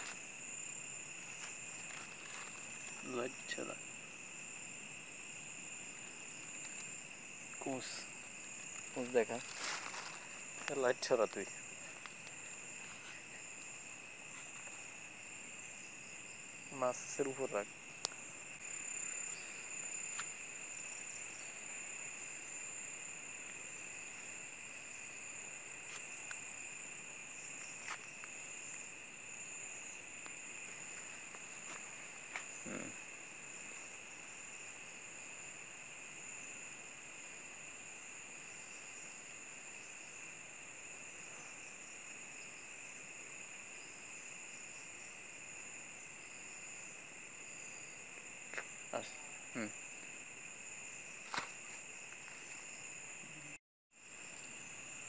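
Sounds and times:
crickets trilling: 0:00.0 - 0:55.0.

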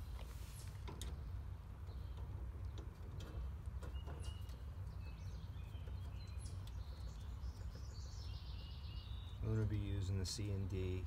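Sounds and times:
bird chirps: 0:03.8 - 0:10.3.

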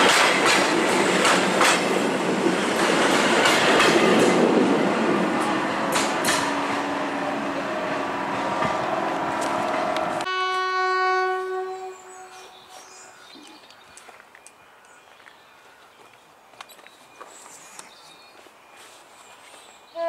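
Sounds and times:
diesel locomotive running: 0:00.0 - 0:10.3
quiet outdoor ambience: 0:04.7 - 0:20.0
long train horn note: 0:05.3 - 0:12.5.

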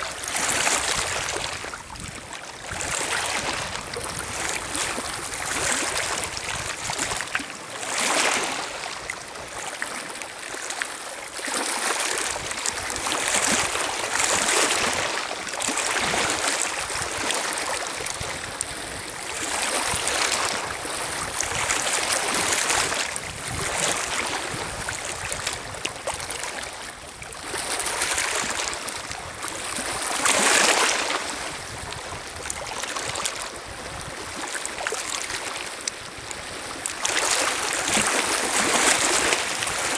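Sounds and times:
waves lapping on pebble shore: 0:00.0 - 0:39.9.

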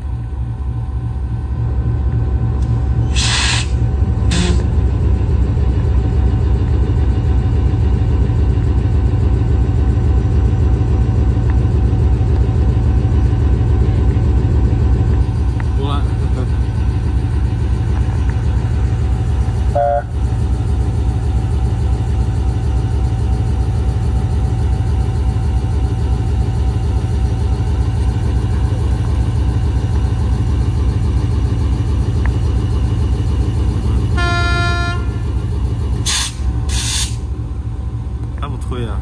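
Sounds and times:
diesel locomotive engine idling: 0:00.0 - 0:39.0
air hissing: 0:03.0 - 0:04.6, 0:36.0 - 0:37.3
locomotive horn toot: 0:03.2 - 0:04.7, 0:19.7 - 0:20.2, 0:34.0 - 0:35.4.

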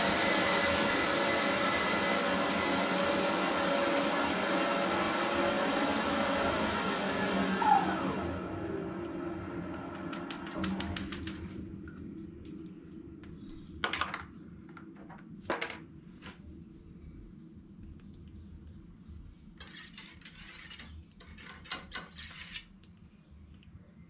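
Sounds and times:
low hum: 0:00.0 - 0:15.4
scraping and rattling: 0:19.6 - 0:22.8.

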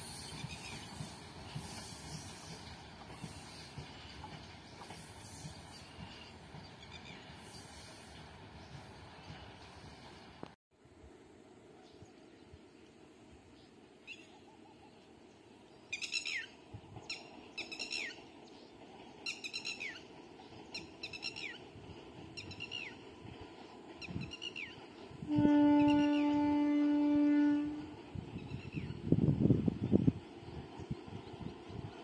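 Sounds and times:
locomotive horn: 0:25.2 - 0:28.0.

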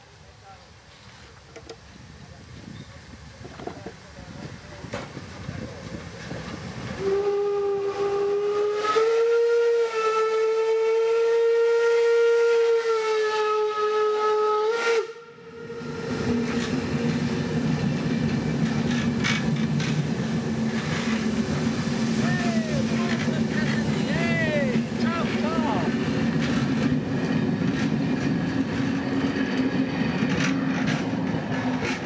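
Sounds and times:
steam whistle blast: 0:07.0 - 0:16.2
train coaches rumbling past: 0:15.4 - 0:32.0.

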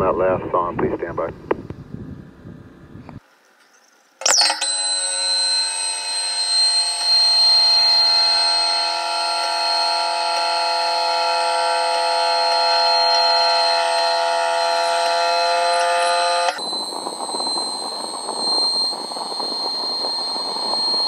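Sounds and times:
electronic buzzing tone: 0:04.2 - 0:21.0.

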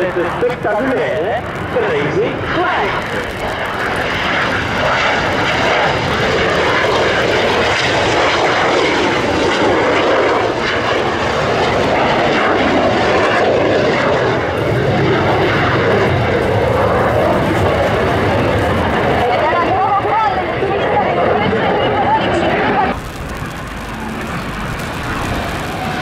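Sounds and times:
jet aircraft engines: 0:00.0 - 0:26.0.

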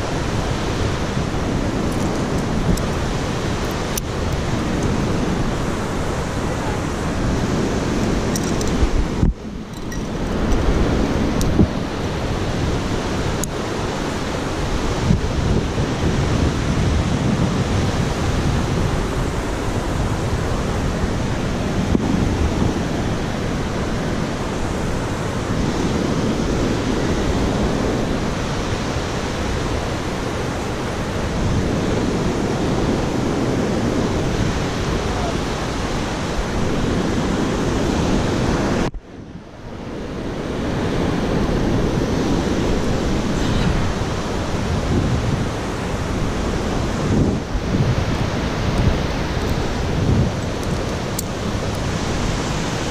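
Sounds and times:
wind buffeting microphone: 0:00.0 - 0:52.9.

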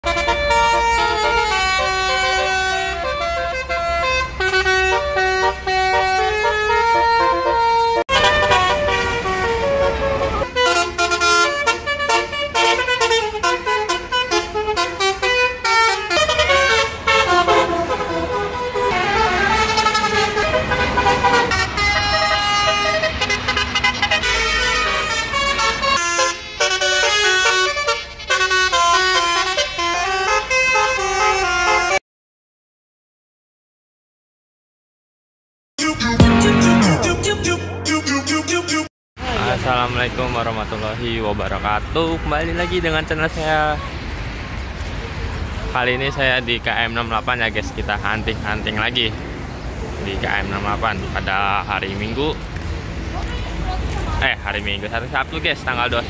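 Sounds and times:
bus engine rumble: 0:00.0 - 0:31.9, 0:39.2 - 0:56.0
multi-tone bus horn melody: 0:00.0 - 0:32.0, 0:35.8 - 0:38.9, 0:42.0 - 0:43.2.

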